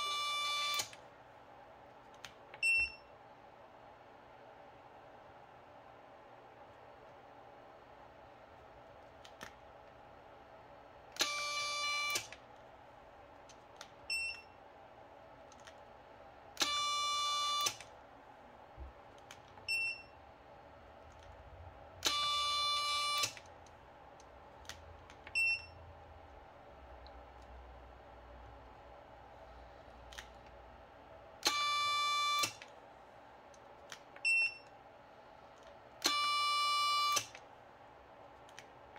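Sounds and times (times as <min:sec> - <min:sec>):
click: 0:02.1 - 0:02.6, 0:13.4 - 0:14.4, 0:19.1 - 0:19.6, 0:23.2 - 0:25.4, 0:30.1 - 0:30.6, 0:32.4 - 0:32.8, 0:38.4 - 0:38.7.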